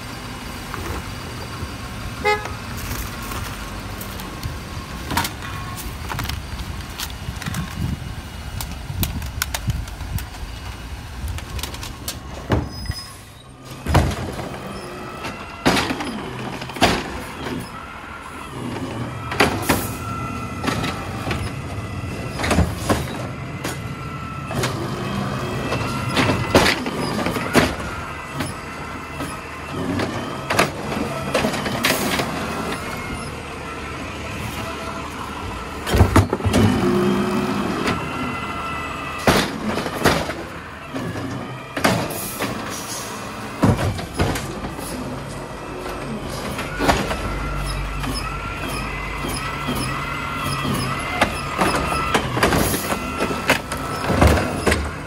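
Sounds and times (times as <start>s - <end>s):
garbage truck running: 0.0s - 55.0s
bins knocking and banging: 13.8s - 17.7s, 25.7s - 28.6s, 43.6s - 45.1s, 48.0s - 55.0s.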